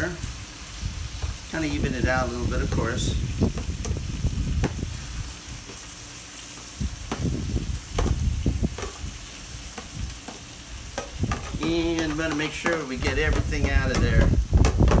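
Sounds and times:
food sizzling on a griddle: 0:00.0 - 0:15.0
metal spatula scraping and knocking: 0:08.0 - 0:09.1, 0:09.7 - 0:15.0.

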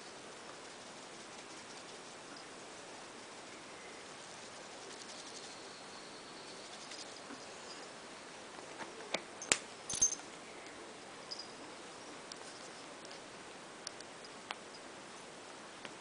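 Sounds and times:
steady low hiss: 0:00.0 - 0:16.0
light jingling clatter: 0:09.4 - 0:10.3, 0:11.3 - 0:11.6.

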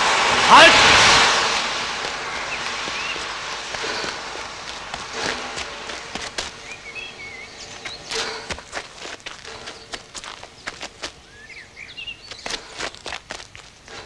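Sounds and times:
background hiss: 0:00.0 - 0:14.0
footsteps outdoors: 0:01.1 - 0:14.0
bird chirps: 0:02.2 - 0:03.3, 0:06.6 - 0:08.5, 0:09.7 - 0:13.0.

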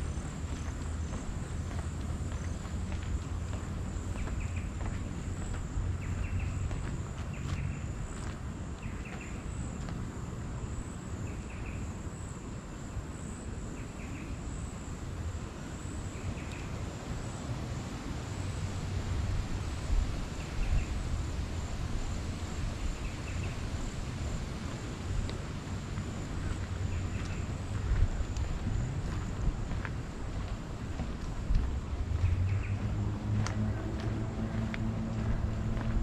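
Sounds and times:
insects trilling: 0:00.0 - 0:36.0
low rumble: 0:25.2 - 0:36.0.

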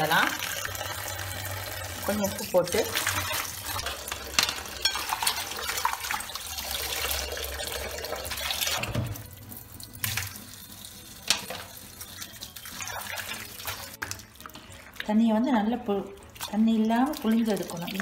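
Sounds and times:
tap water running into bowl: 0:00.0 - 0:18.0.

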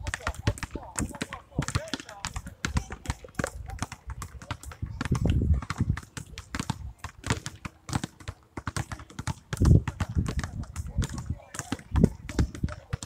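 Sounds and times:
basketballs bouncing on asphalt: 0:00.0 - 0:13.0.

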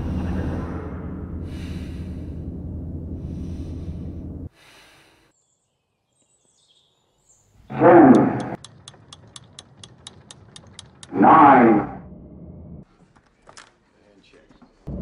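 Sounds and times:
deep steady rumble: 0:00.0 - 0:04.5, 0:07.7 - 0:12.8
breathing inside a helmet: 0:01.4 - 0:05.3.

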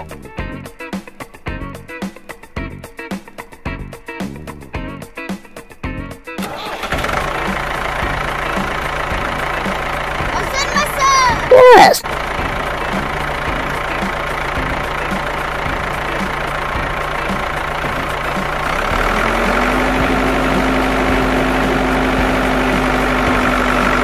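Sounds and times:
higher motor hum: 0:06.7 - 0:24.0.

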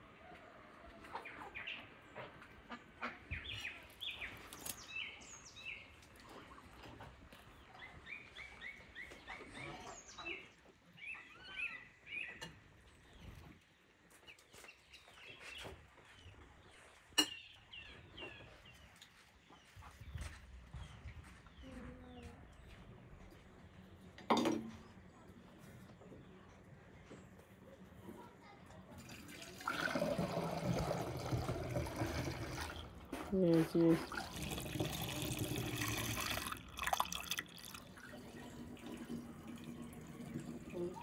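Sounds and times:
birds chirping: 0:00.3 - 0:28.3.

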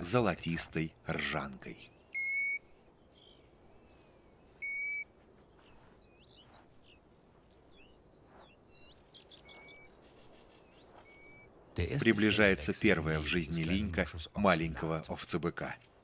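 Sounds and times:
faint bird chirps and twitters: 0:00.0 - 0:16.0
plover whistling call: 0:02.0 - 0:02.8, 0:04.6 - 0:05.1, 0:11.0 - 0:11.5.

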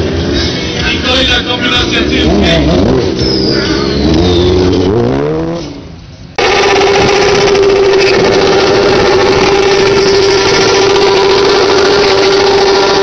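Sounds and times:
motorcycle engine revving: 0:00.0 - 0:13.0
motorcycle engine at high revs: 0:06.4 - 0:13.0.

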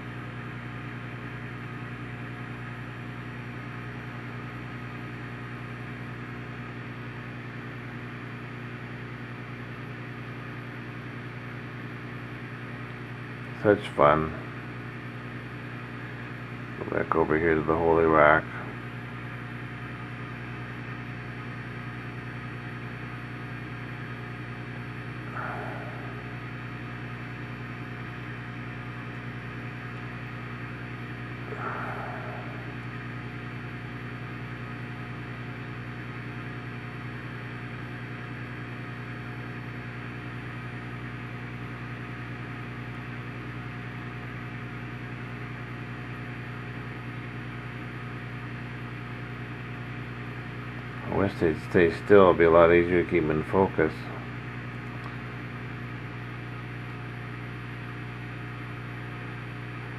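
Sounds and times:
aquarium equipment hum: 0:00.0 - 0:59.9.

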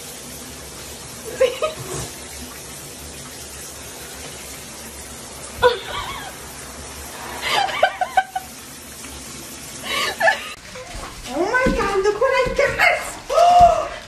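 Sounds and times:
shower spray on bathtub floor: 0:00.0 - 0:14.0
person laughing: 0:01.3 - 0:02.0, 0:05.6 - 0:06.4, 0:07.4 - 0:08.5, 0:09.9 - 0:10.6.

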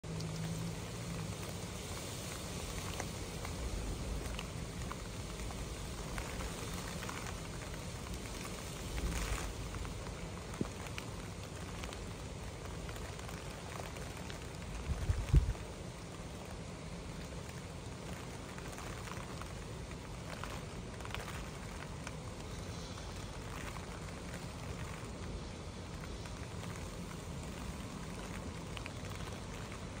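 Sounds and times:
heavy rain on car roof: 0:00.0 - 0:30.0.

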